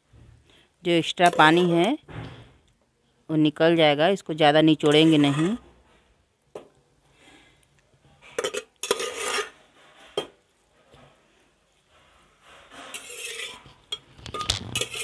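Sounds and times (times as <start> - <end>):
steel ladle scraping a strainer: 4.8 - 5.6, 8.2 - 10.3, 11.8 - 15.0.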